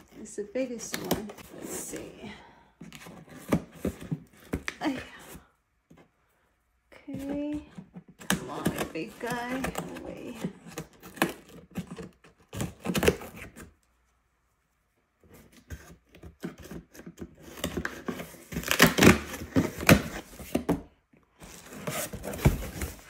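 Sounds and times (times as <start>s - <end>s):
cardboard flaps tearing open: 17.8s - 20.2s.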